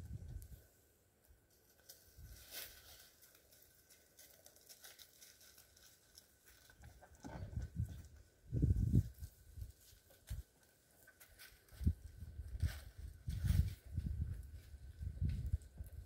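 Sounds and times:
footsteps on gravel and leaves: 1.8s - 6.8s.

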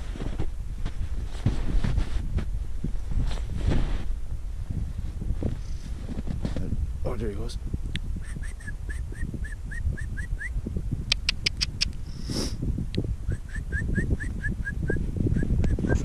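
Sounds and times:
steady low rumble: 0.0s - 16.0s
animal chirping: 8.2s - 10.5s, 11.1s - 11.9s
sharp clicks: 11.1s - 12.0s.

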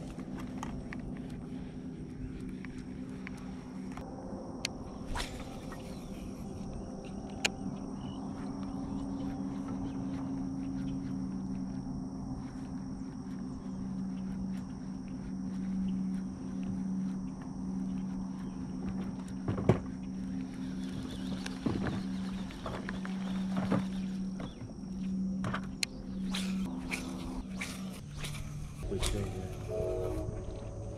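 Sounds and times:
electric motor humming: 20.0s - 30.9s.

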